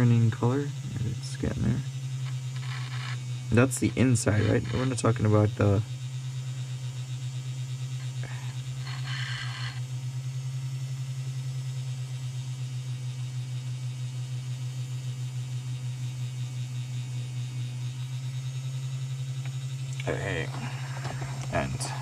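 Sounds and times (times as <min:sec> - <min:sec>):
model locomotive motor humming: 0:00.0 - 0:22.0
scratchy rasp: 0:02.2 - 0:05.2, 0:08.1 - 0:09.8.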